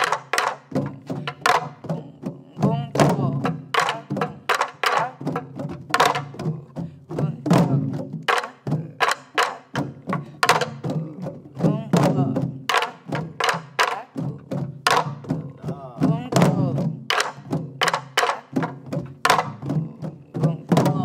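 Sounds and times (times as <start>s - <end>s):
sticks clacking on drum rims: 0.0s - 1.8s
person singing: 0.0s - 21.0s.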